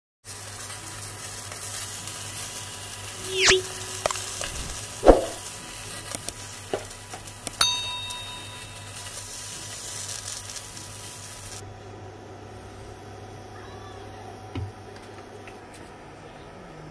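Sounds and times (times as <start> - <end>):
oil sizzling in frying: 0.2 - 11.6
whoosh effect: 3.2 - 5.4
loud thump: 4.6 - 5.4
bell-like ding: 7.6 - 9.3.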